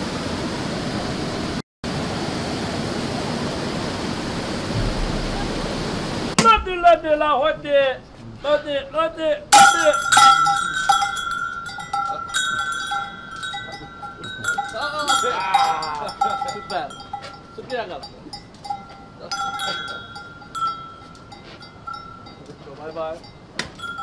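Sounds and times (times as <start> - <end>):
vendor's bell clanging: 9.5 - 24.0.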